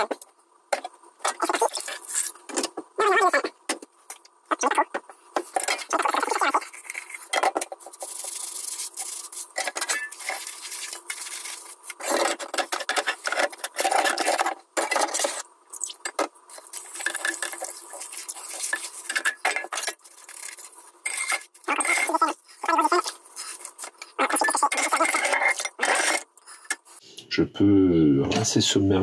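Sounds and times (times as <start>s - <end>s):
sponge scrubbing a pan: 5.5s - 15.4s, 16.6s - 25.3s
pans and utensils clattering: 9.6s - 15.4s, 16.1s - 22.2s.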